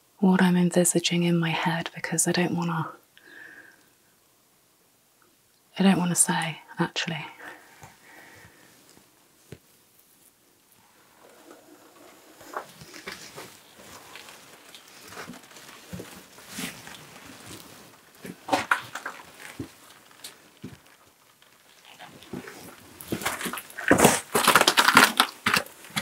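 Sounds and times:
rustling and scuffing: 10.9s - 20.9s.

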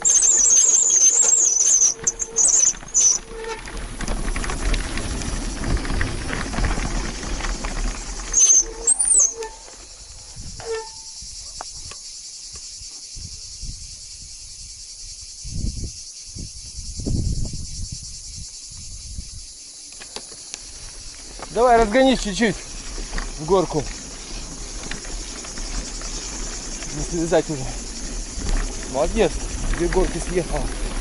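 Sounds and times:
insects chirring: 0.0s - 31.0s
low rumbling noise: 2.0s - 8.9s.

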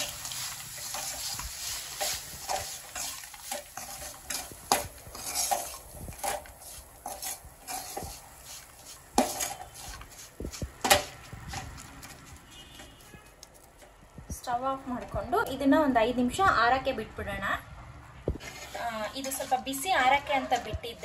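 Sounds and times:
metal spatula scraping a pan: 0.0s - 13.0s, 18.4s - 21.0s.

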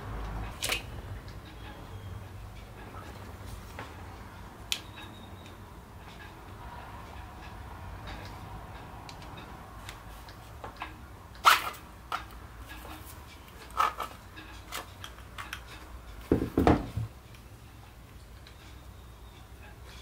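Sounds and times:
plastic and metal parts clicking: 13.5s - 15.8s.

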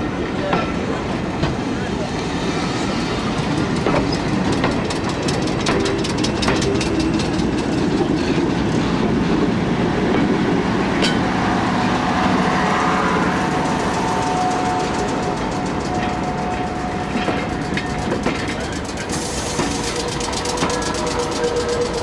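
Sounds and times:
train wheels rumbling: 0.0s - 22.0s
wheels clicking over rail joints: 3.5s - 9.2s, 13.4s - 22.0s.

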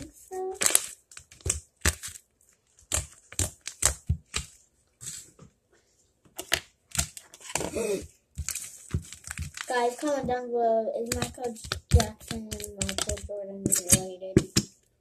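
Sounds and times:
slime squishing and popping: 0.4s - 4.5s, 6.4s - 7.8s, 8.4s - 9.8s, 11.1s - 14.6s.

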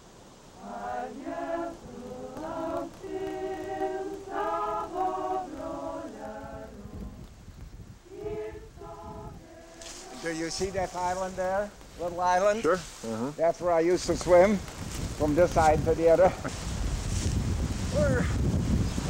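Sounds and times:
choir singing held notes: 0.6s - 7.3s, 8.0s - 11.8s.

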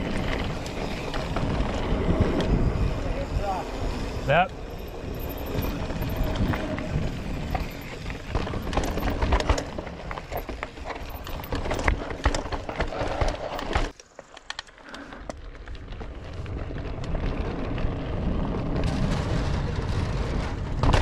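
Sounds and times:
bike rattling over rocks: 0.0s - 14.7s
bike tyres crunching over dirt: 0.0s - 21.0s.

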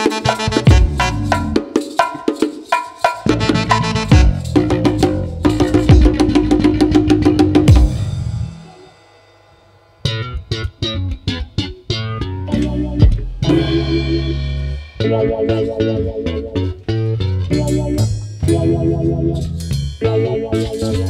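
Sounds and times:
bass guitar: 0.0s - 1.6s, 3.2s - 8.9s, 10.0s - 21.0s
band playing song: 0.0s - 8.9s, 10.1s - 21.0s
plucked guitar notes: 10.0s - 21.0s.

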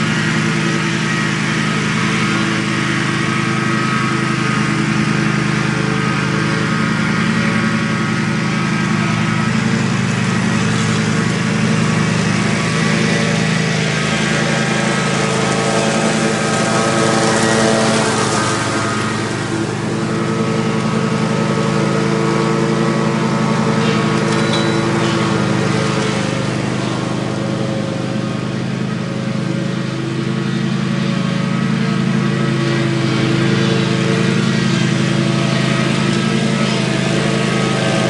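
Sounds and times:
mower engine running: 0.0s - 38.0s.

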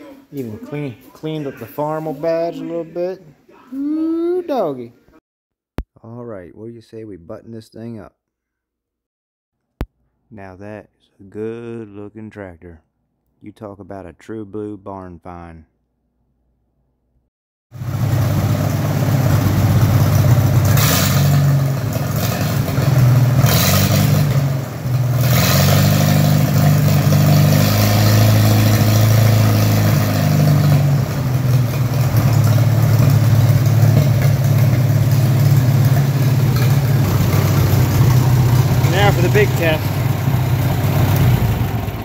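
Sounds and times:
tractor engine running: 17.8s - 42.0s.

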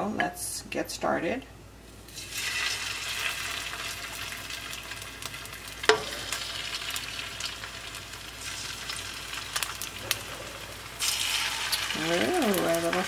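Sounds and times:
shrimp sizzling in oil: 2.1s - 13.0s.

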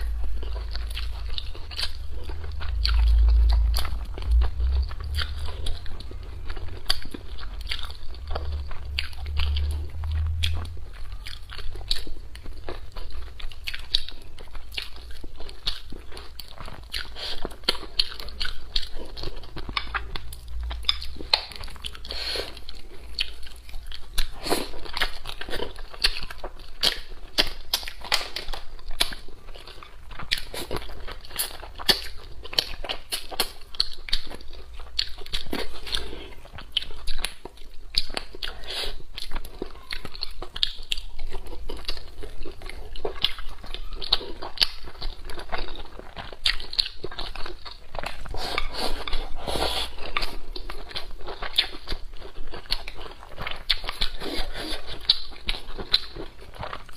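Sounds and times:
wet chewing: 0.0s - 56.9s.

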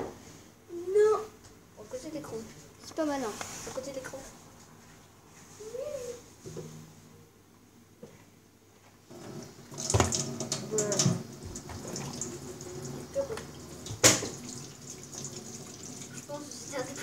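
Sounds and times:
tap water running into sink: 9.1s - 17.0s.

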